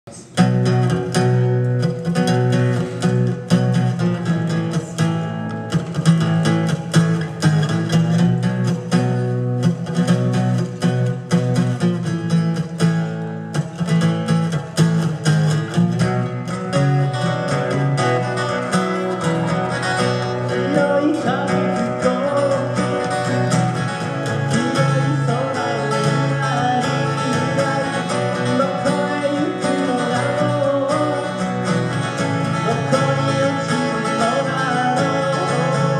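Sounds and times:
bending guitar lead melody: 0.1 - 35.9
strummed acoustic guitar chords: 0.1 - 35.9.

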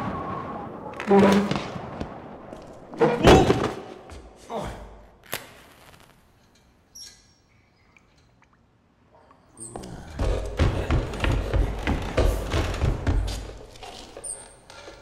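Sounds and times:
faint high squeak: 6.9 - 7.6.

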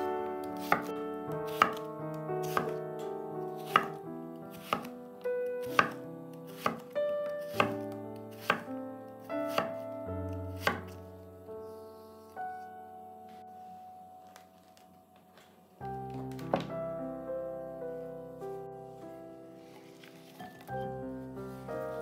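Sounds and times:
background music: 0.0 - 22.0
knife chopping on a cutting board: 0.6 - 0.9, 1.5 - 1.8, 2.4 - 2.8, 3.6 - 4.9, 5.6 - 8.7, 9.5 - 9.8, 10.6 - 11.0.

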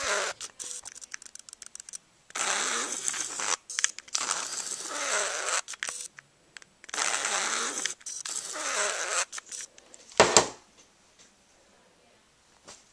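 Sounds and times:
camera lens motor grinding: 0.0 - 6.1, 6.9 - 9.8
sharp knocks on table: 10.2 - 10.6.

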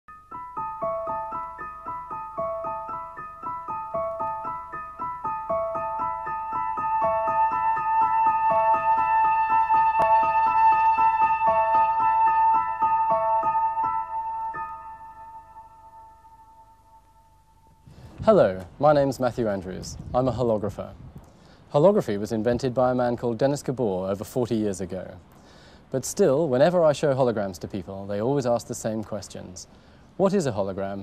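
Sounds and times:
held keyboard tone: 0.1 - 17.8
electronic keyboard arpeggio: 0.1 - 17.9.

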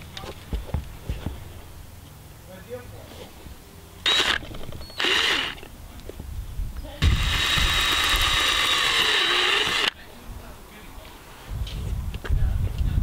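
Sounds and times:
cordless drill boring into rubber: 4.1 - 5.6, 7.0 - 10.0.

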